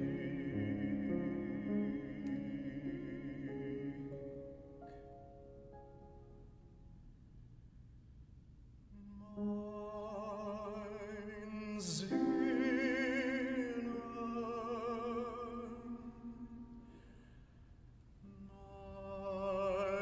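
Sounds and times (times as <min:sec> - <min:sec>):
grand piano accompaniment: 0:00.0 - 0:07.2, 0:09.0 - 0:17.4
man singing operatically: 0:09.1 - 0:16.6, 0:18.2 - 0:20.0.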